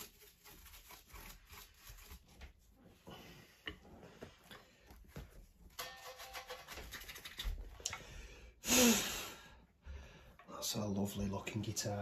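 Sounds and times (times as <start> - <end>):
hands scratching on guitar: 0.0 - 2.5.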